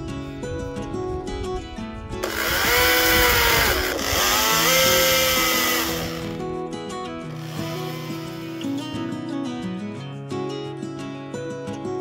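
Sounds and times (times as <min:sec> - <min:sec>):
acoustic guitar music: 0:00.0 - 0:12.0
electric chainsaw cutting log: 0:02.2 - 0:06.4, 0:07.4 - 0:08.8.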